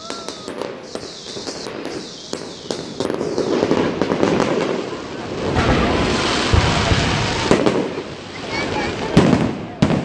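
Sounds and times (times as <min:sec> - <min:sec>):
fireworks bangs and pops: 0:00.0 - 0:10.0.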